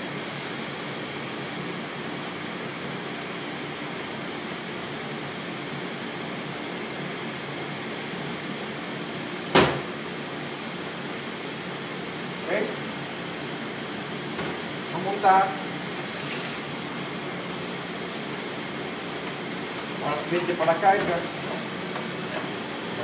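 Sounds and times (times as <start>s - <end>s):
liquid hissing in hot pan: 0.2s - 1.0s
sharp knock: 9.5s - 9.8s.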